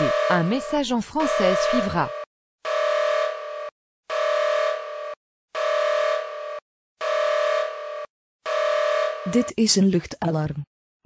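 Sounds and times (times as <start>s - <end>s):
two-pitch emergency alert beep: 0.0s - 3.0s.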